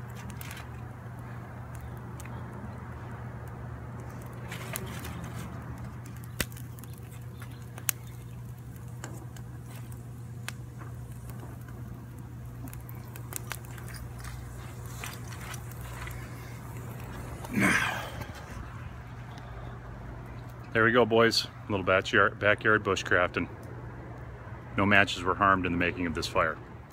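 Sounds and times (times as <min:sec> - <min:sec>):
burning wood popping: 0:00.0 - 0:20.9
kindling fire crackling: 0:00.0 - 0:26.9
steady low hum: 0:00.0 - 0:26.9.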